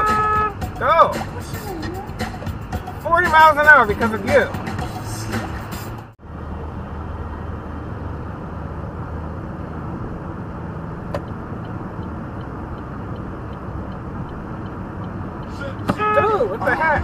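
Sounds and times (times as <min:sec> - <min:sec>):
car road and engine noise: 0:00.0 - 0:17.0.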